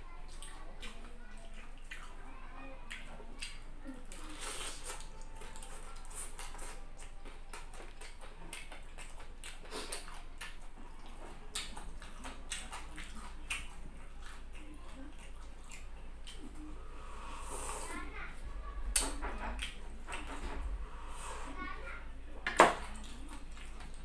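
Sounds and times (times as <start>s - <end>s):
man chewing crunchy food: 0.3s - 2.2s, 2.8s - 17.4s, 23.0s - 24.0s.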